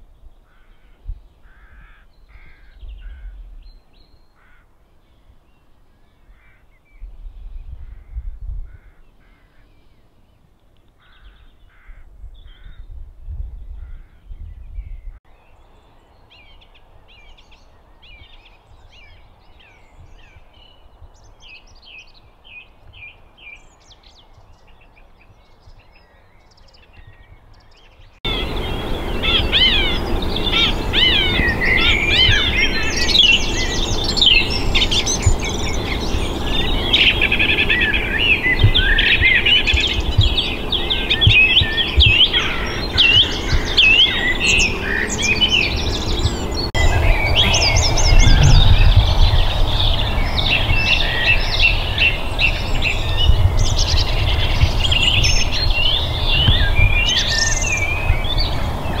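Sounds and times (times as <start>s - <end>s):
birds singing and chirping: 0.0s - 59.0s
low rumble: 45.8s - 51.8s.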